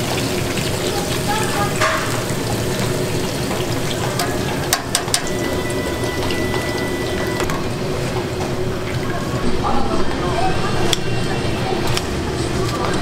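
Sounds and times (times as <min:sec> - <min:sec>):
oil sizzling in a deep fryer: 0:00.0 - 0:09.5.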